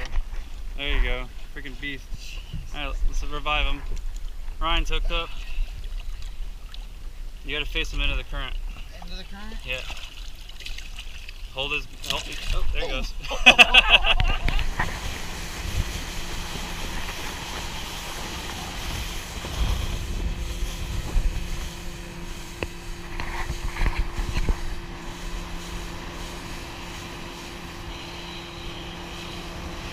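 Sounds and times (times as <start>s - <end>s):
engine droning: 4.6s - 29.9s
wind rumble on microphone: 12.6s - 29.9s.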